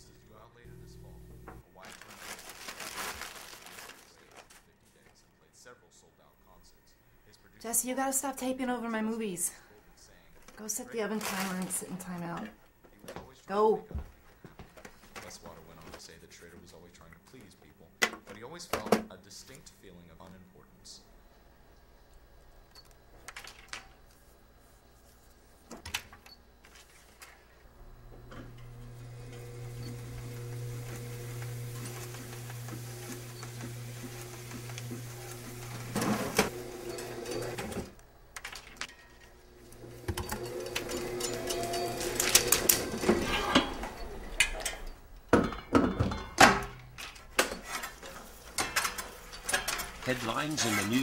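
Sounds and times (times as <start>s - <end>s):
low hum with steady tones: 0.0s - 1.6s.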